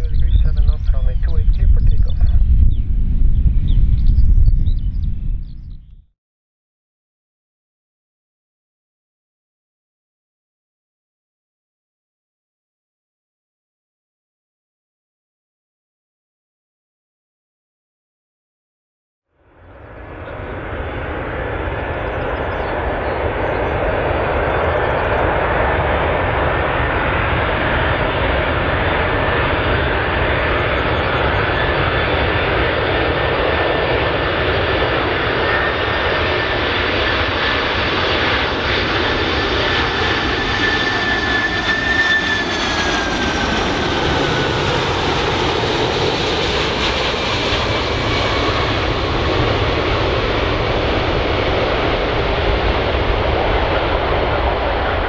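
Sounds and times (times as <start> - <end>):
jet airliner engines roaring: 0.0 - 5.9, 19.4 - 55.0
thin engine whine: 19.6 - 33.4, 34.0 - 55.0.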